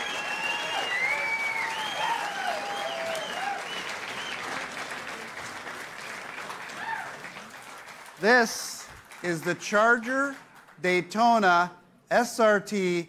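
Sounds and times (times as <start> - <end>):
audience cheering: 0.0 - 5.2, 6.1 - 7.6
audience applauding: 0.0 - 11.0.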